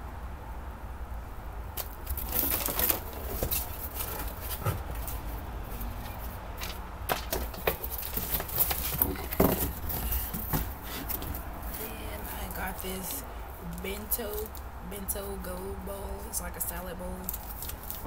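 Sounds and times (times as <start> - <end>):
low steady hum: 0.0 - 18.0
packaging rustling and crinkling: 1.8 - 14.7, 17.2 - 18.0.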